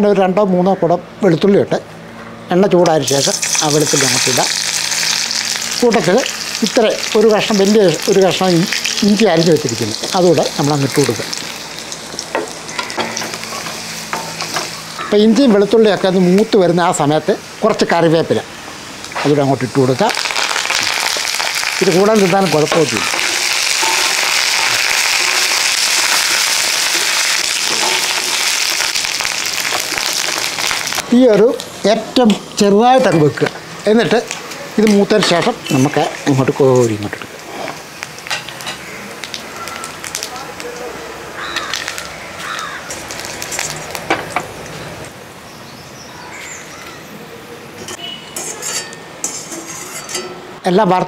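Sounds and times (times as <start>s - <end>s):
food sizzling in hot oil: 3.0s - 44.8s
wire strainer clinking on metal: 23.0s - 28.5s, 48.4s - 50.5s.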